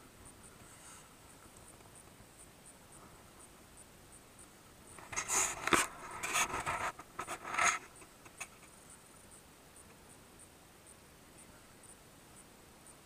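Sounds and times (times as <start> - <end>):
clothing and grass rustling: 0.4 - 3.6, 4.7 - 9.2.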